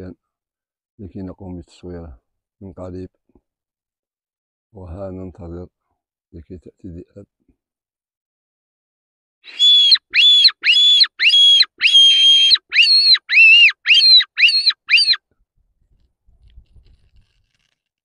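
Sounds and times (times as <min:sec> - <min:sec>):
shrill rabbit distress squeals: 0:09.5 - 0:15.2.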